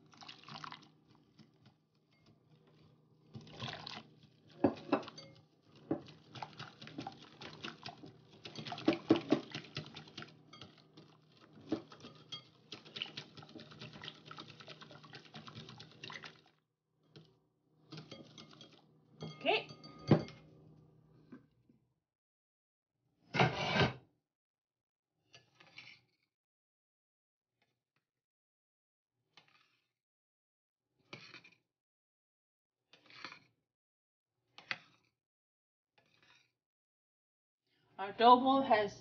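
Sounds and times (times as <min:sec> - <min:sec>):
whisk clicking against glass bowl: 0:11.6 - 0:15.9.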